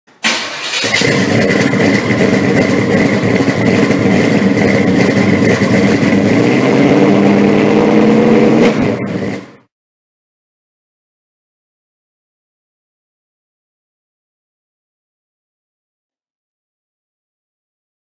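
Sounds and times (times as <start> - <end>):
car engine running: 0.4 - 9.7.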